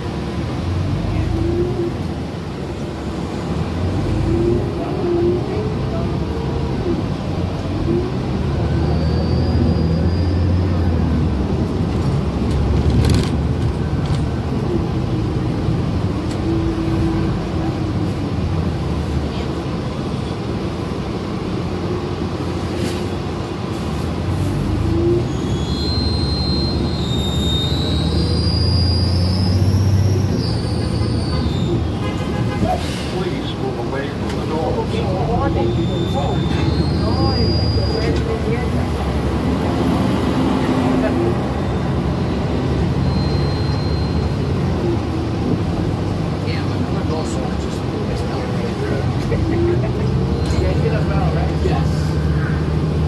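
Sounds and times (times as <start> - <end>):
bus engine and road rumble: 0.0 - 53.0
brief high squeal: 9.0 - 10.5, 25.3 - 32.0, 35.6 - 38.3, 43.0 - 44.4.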